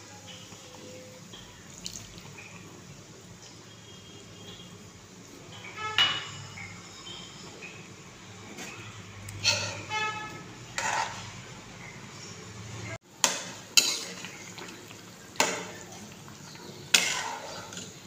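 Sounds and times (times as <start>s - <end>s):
curry bubbling: 0.3s - 5.9s, 6.6s - 18.0s
spatula scraping metal pan: 8.5s - 11.5s, 13.2s - 14.4s, 16.9s - 18.0s.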